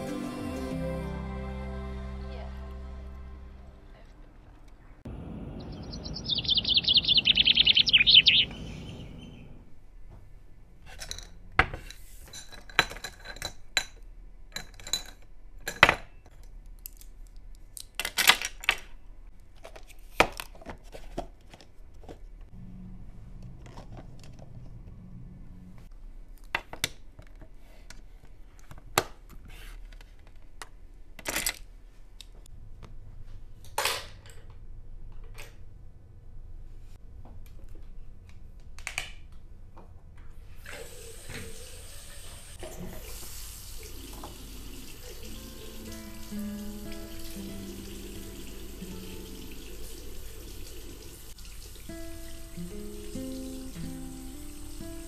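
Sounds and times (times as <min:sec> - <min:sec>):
bird calling: 0:05.1 - 0:09.7.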